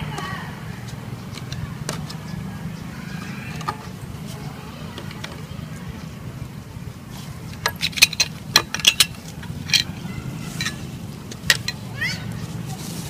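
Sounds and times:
plastic parts clicking: 7.5 - 10.0.

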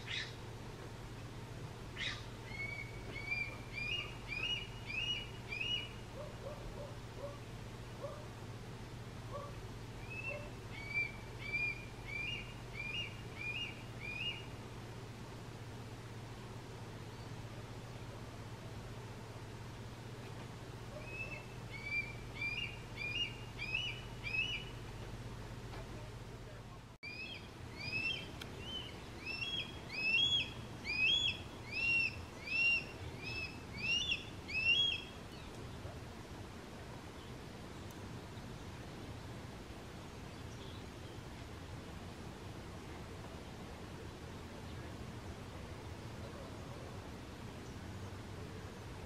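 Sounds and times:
young hawk calling: 0.0 - 0.4, 2.0 - 7.4, 9.3 - 14.5, 20.9 - 24.8, 27.0 - 35.4
hawk begging cries: 27.0 - 35.1.

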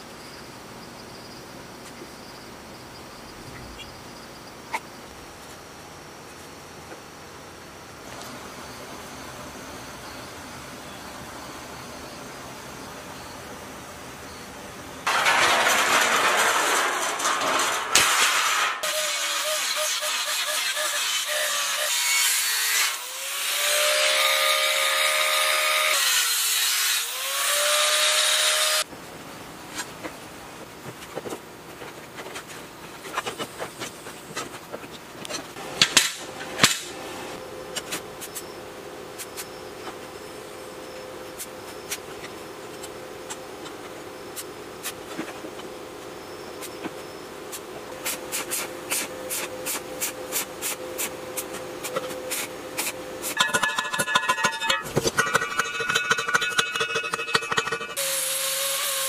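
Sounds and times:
metal plates clicking: 15.1 - 18.8, 53.4 - 58.0
angle grinder cutting steel: 18.0 - 28.8, 53.4 - 59.0.

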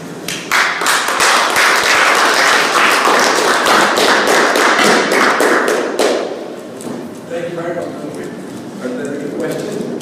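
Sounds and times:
audience applauding: 0.3 - 6.3.

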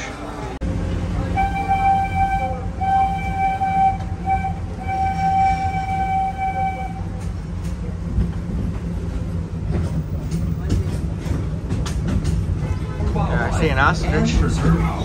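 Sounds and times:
low rumble of train: 0.0 - 15.0
steam locomotive whistle blasts: 1.4 - 7.2.

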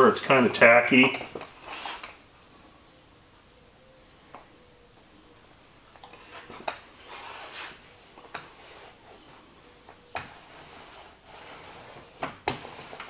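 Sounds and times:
paint roller swishing: 1.4 - 2.2, 6.2 - 13.0.

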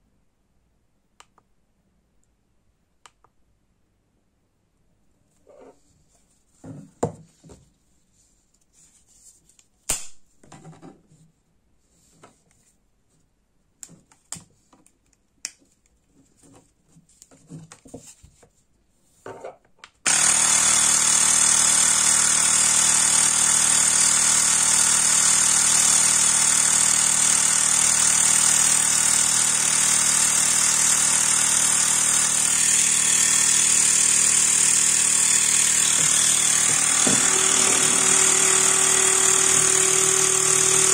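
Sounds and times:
air compressor buzzing: 20.1 - 40.9.

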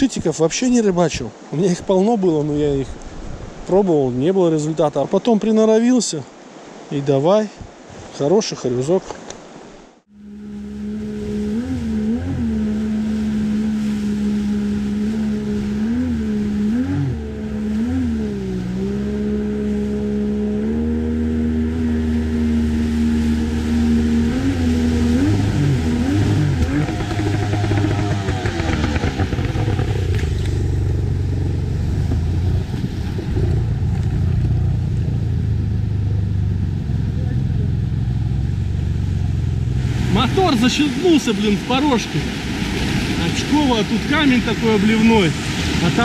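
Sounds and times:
boat motor running: 10.1 - 46.0.

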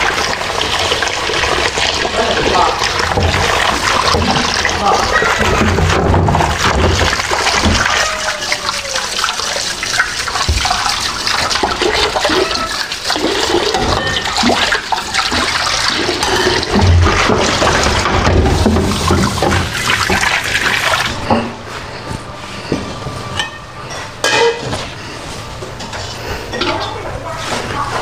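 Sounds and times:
tap water running into sink: 0.0 - 21.3
cookware clinking and knocking: 22.8 - 24.9, 25.8 - 27.0.

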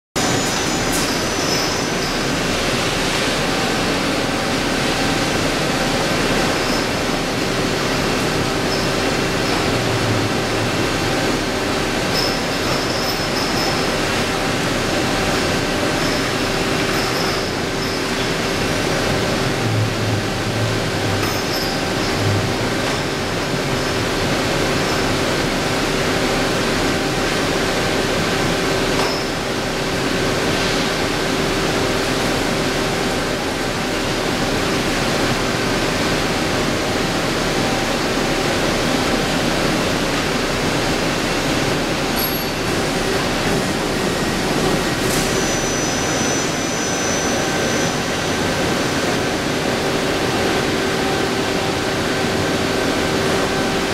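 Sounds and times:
lathe machine whir: 0.2 - 53.9.

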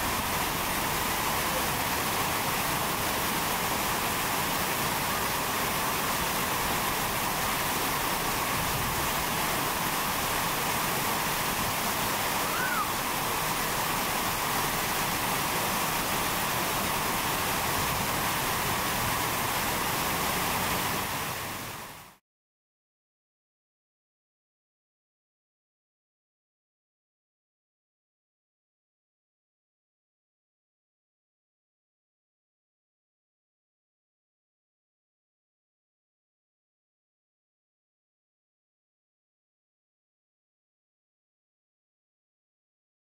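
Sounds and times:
flowing water rushing: 0.0 - 22.2.

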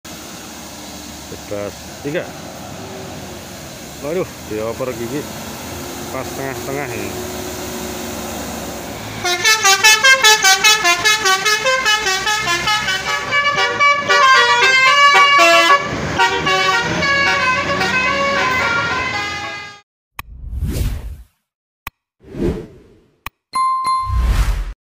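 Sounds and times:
multi-tone air horn tune: 9.2 - 19.8.

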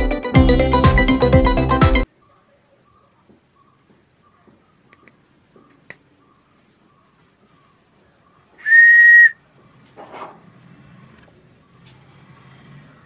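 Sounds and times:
wooden train whistle: 8.6 - 9.4.

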